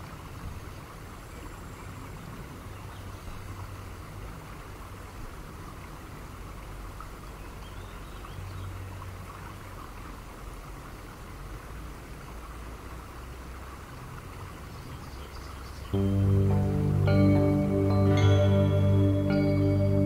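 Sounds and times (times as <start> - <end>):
low hum: 16.0 - 20.0.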